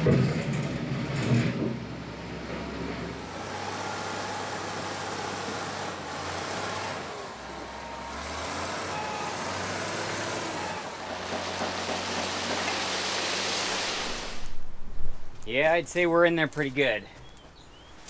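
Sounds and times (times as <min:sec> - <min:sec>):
diesel engine running: 0:01.6 - 0:14.6.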